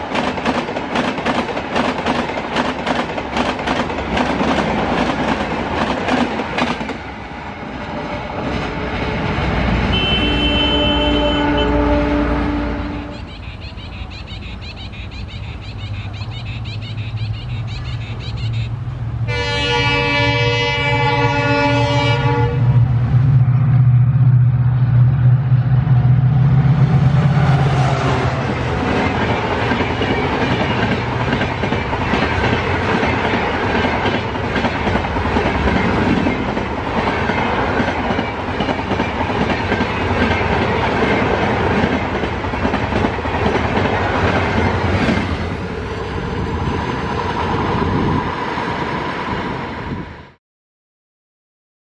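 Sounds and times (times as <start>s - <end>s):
rail and wheel clatter: 0.0s - 50.4s
locomotive engine drone: 7.0s - 32.9s
locomotive horn: 8.2s - 14.1s, 18.6s - 22.8s.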